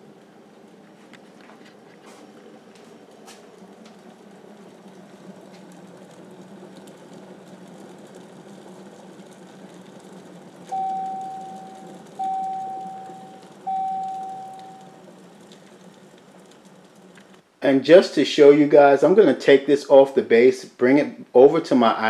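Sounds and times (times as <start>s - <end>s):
electric kettle heating water: 0.0s - 17.5s
kettle long beeps: 10.6s - 15.7s.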